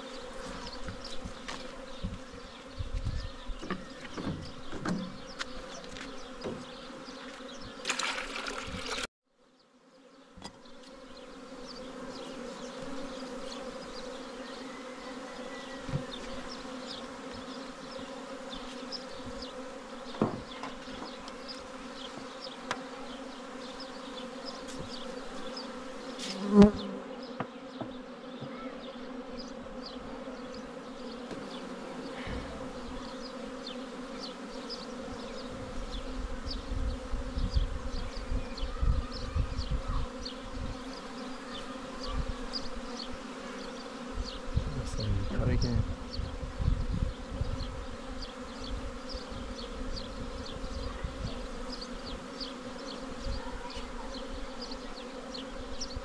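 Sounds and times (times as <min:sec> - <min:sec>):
honeybees buzzing: 0:00.0 - 0:56.0
knocks on wooden beehive: 0:20.1 - 0:21.2, 0:27.4 - 0:28.6.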